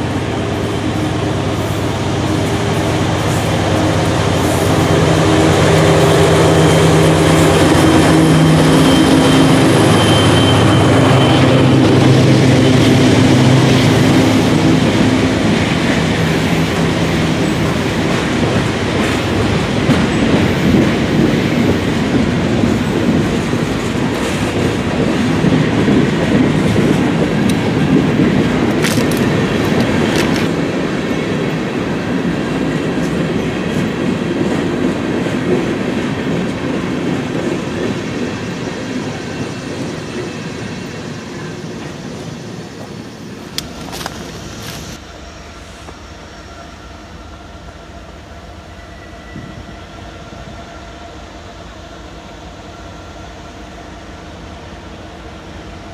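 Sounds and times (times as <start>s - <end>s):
diesel locomotive engine: 0.0s - 55.9s
steel wheels rumbling on rails: 0.0s - 55.9s.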